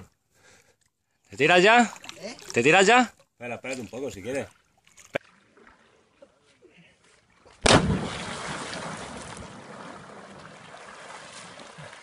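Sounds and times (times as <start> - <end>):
churning water: 7.6 - 12.0
loud splash into water: 7.6 - 12.0.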